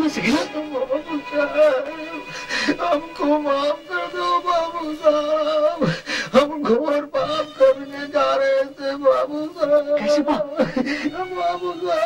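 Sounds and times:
man speaking tearfully: 0.0 - 3.2.

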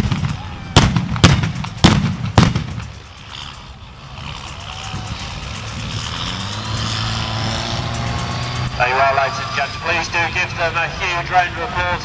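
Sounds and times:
pyrotechnic blast: 0.0 - 3.2
armoured vehicle engine drone: 0.0 - 12.0.

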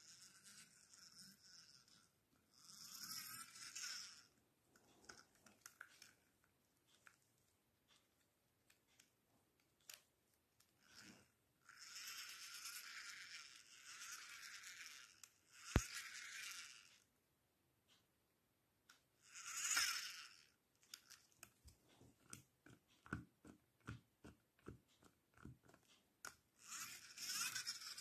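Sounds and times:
toy hissing whir: 0.0 - 4.4, 10.8 - 17.0, 19.2 - 21.2, 26.6 - 28.0
plastic toy clicks and rattles: 0.0 - 7.2, 9.8 - 17.0, 18.9 - 23.2, 25.4 - 28.0.

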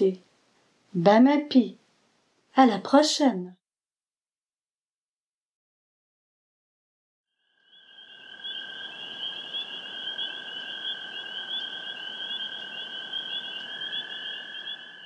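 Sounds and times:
soft hiss: 0.0 - 3.3.

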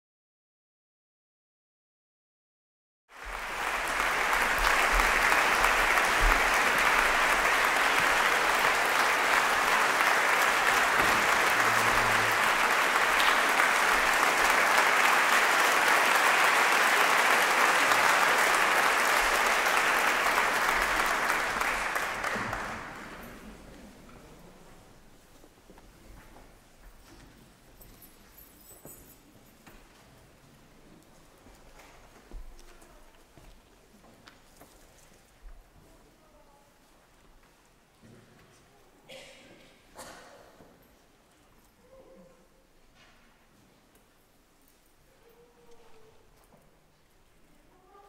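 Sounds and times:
audience applauding: 3.2 - 23.6.

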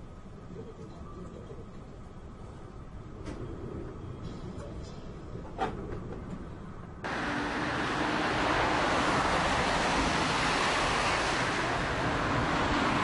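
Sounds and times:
turboprop airliner passing low: 7.0 - 13.0.

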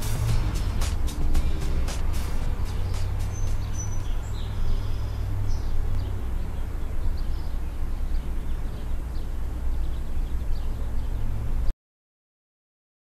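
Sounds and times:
steady low rumble: 0.0 - 8.1
small birds chirping and whistling: 0.8 - 11.3.

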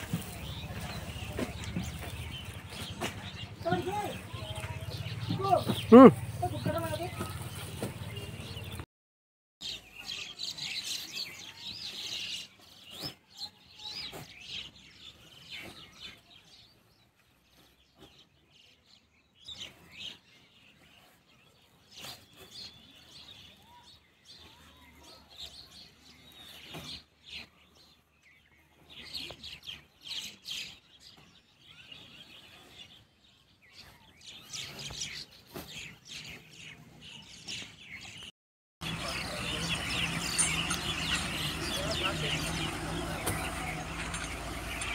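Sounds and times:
birds chirping: 0.0 - 8.9, 9.6 - 44.9.

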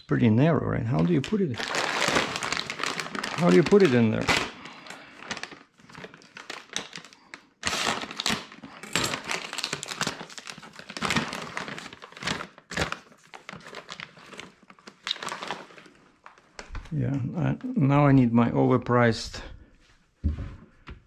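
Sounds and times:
plastic bags crinkling: 0.9 - 16.7.

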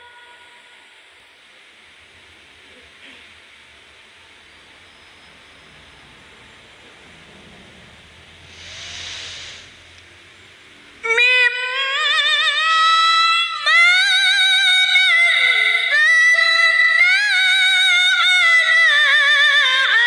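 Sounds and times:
woman reciting melodiously: 0.0 - 1.1, 11.0 - 20.0.

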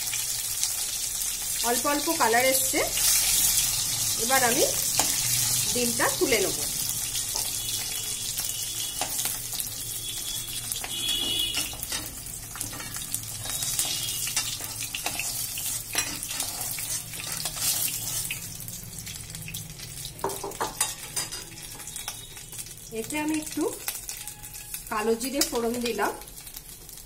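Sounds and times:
hot oil sizzling in wok: 0.0 - 27.0
metal spatula scraping pan: 10.3 - 18.4.

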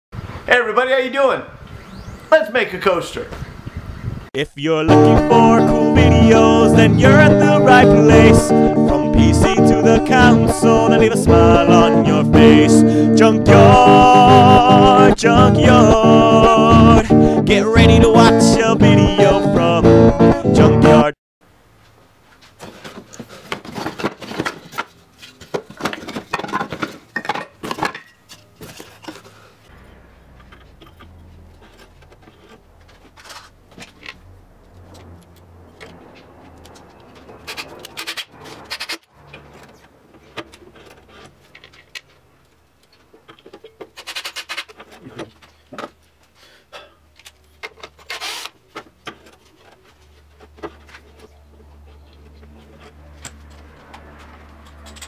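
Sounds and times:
wood and tools knocking and scraping: 22.3 - 46.4, 47.1 - 55.0.

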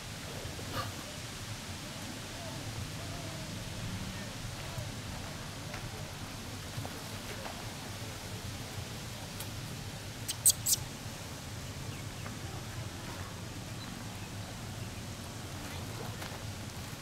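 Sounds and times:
baby monkey squeaking: 10.3 - 10.8.

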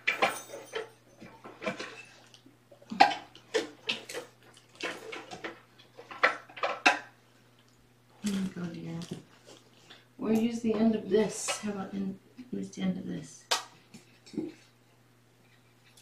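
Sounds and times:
clattering and rustling: 0.0 - 2.4, 3.0 - 7.1.

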